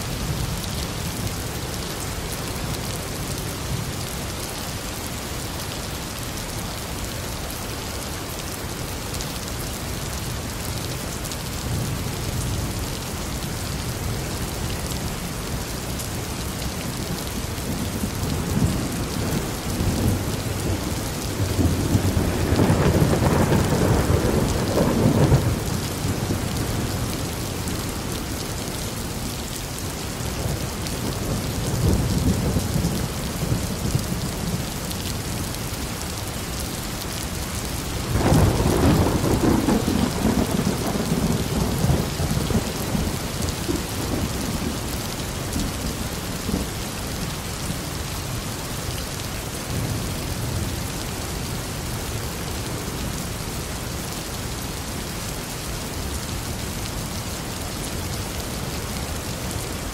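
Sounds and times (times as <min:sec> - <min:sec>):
rain falling: 0:00.0 - 0:59.9
thunder rumbling: 0:17.7 - 0:27.1, 0:38.0 - 0:44.8.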